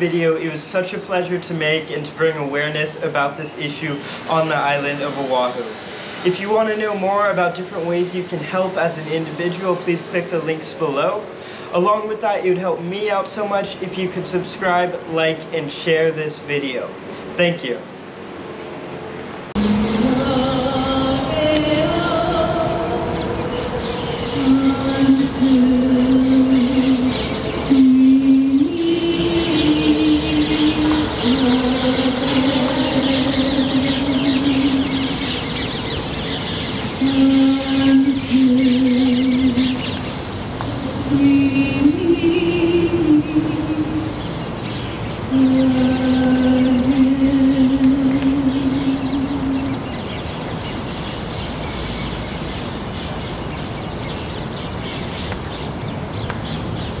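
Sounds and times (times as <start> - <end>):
person chanting long notes: 19.6 - 35.5, 37.0 - 39.8, 40.6 - 44.3, 45.3 - 49.9
birds chattering: 19.6 - 57.0.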